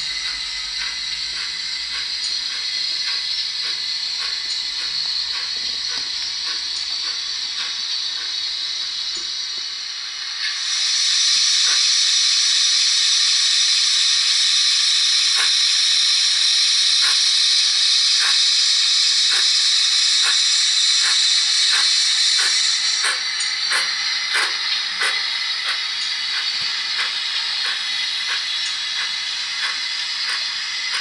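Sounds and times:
steam hiss from small speaker: 0.0s - 31.0s.

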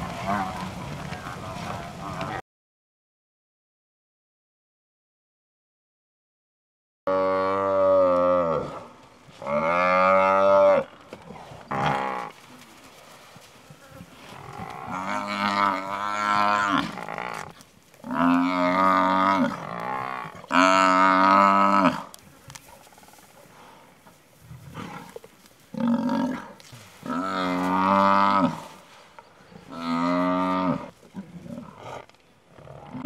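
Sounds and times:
buffalo bellowing: 13.8s - 22.2s, 29.6s - 33.0s.

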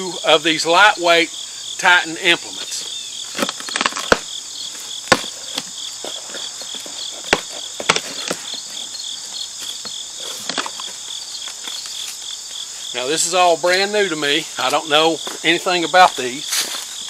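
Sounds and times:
crickets chirping: 0.0s - 17.0s
cardboard box flaps cracking: 5.1s - 5.7s.

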